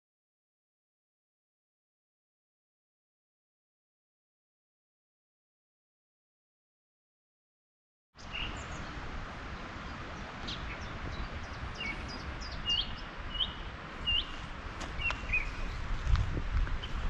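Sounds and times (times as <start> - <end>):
low rumbling background noise: 8.2 - 17.0
small birds chirping: 8.2 - 17.0.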